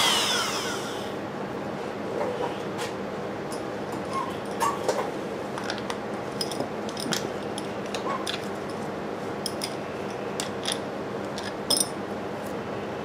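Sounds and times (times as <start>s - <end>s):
metal parts clicking and clinking: 5.6s - 8.8s, 9.4s - 12.0s.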